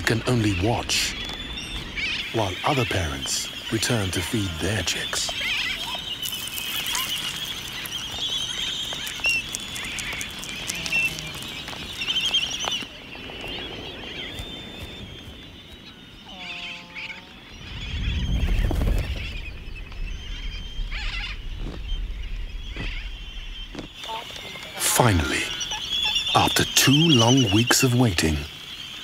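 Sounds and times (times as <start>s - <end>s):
albatross squeaky calls: 5.4s - 12.8s
low rumble: 17.2s - 26.3s.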